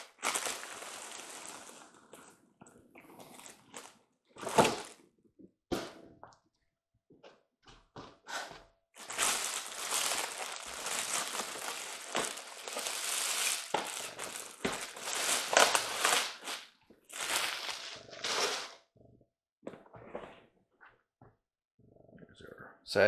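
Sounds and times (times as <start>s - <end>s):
packaging crinkling and rustling: 0.0s - 2.3s, 3.2s - 5.0s, 9.0s - 18.8s.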